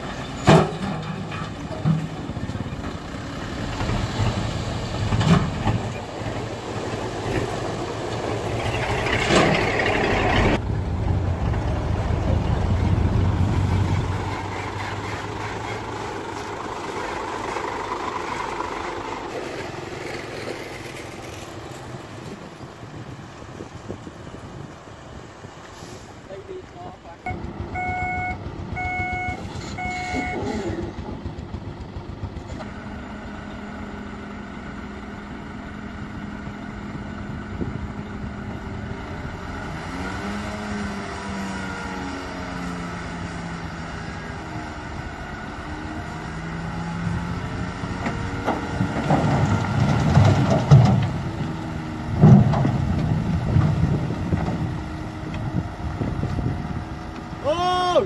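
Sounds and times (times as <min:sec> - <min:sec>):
diesel truck engine revving: 0:01.6 - 0:22.2, 0:27.3 - 0:57.4
rocky soil tumbling out: 0:19.1 - 0:22.8
reversing alarm beeping: 0:27.3 - 0:30.6.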